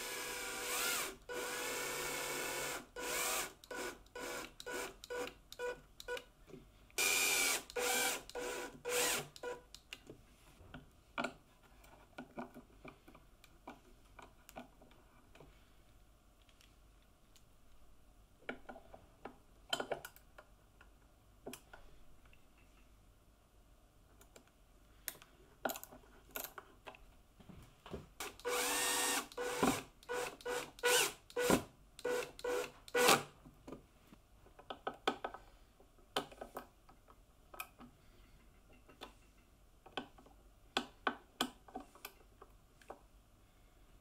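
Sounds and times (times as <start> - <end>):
cordless drill driving screw: 0.0 - 5.7, 7.0 - 9.6, 28.2 - 33.2.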